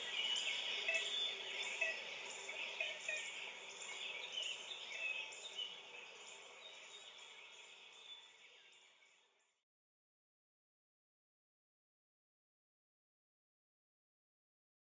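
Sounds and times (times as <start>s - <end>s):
bird chirps: 0.0s - 9.1s.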